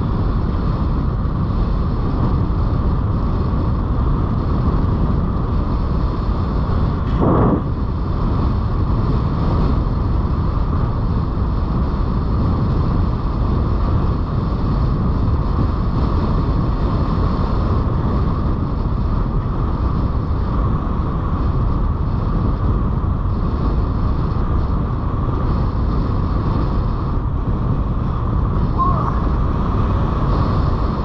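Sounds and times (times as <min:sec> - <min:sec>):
wind buffeting microphone: 0:00.0 - 0:31.0
airflow rushing: 0:05.6 - 0:09.8, 0:22.1 - 0:31.0.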